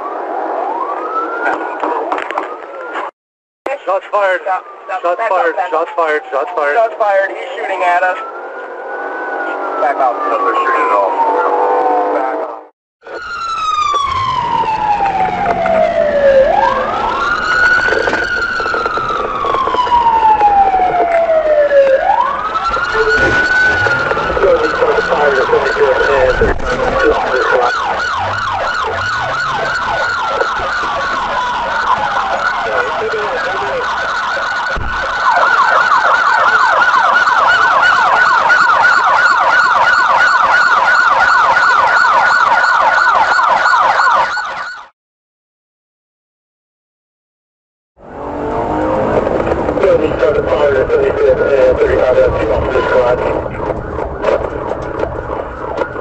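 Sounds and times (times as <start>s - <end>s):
engine and road noise: 0.0s - 44.8s, 48.0s - 56.0s
police sirens wailing: 0.0s - 44.9s, 48.0s - 56.0s
low thump: 34.8s - 35.0s.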